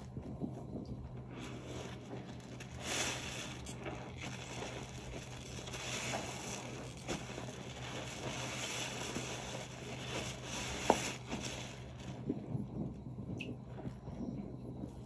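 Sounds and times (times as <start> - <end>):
soapy sponge squishing: 1.2 - 12.3.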